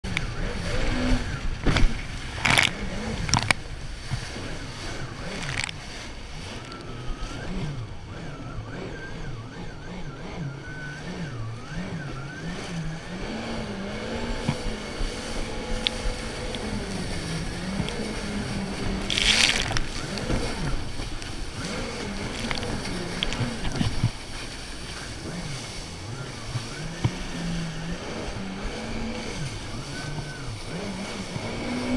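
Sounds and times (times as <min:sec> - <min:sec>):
rushing water: 0:00.0 - 0:08.0, 0:12.8 - 0:31.9
hull slapping waves: 0:00.0 - 0:09.0, 0:10.7 - 0:31.9
jet ski engine running: 0:00.0 - 0:31.9
wind on microphone: 0:10.5 - 0:31.9.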